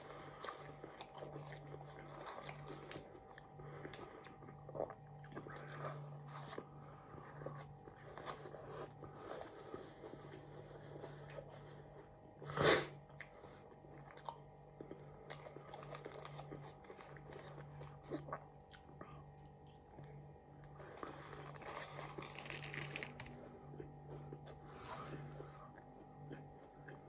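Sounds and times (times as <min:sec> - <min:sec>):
chewing and crunching food: 0:00.0 - 0:27.0
paper wrapping crinkling: 0:21.0 - 0:23.4.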